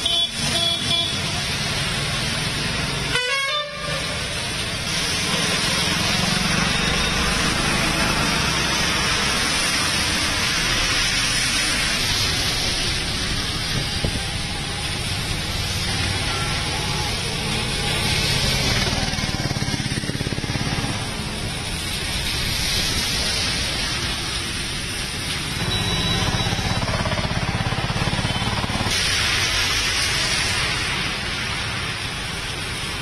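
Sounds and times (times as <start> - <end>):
vehicle horn: 0.0 - 1.2, 3.1 - 4.2
heavy rain pouring: 0.0 - 33.0
traffic driving through water: 0.0 - 33.0.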